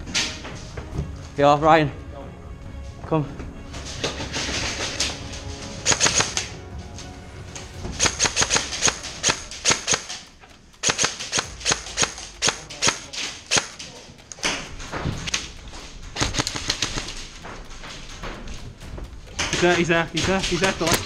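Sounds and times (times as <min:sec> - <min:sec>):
airsoft guns firing: 0:05.8 - 0:06.5, 0:08.0 - 0:15.2, 0:16.2 - 0:17.4.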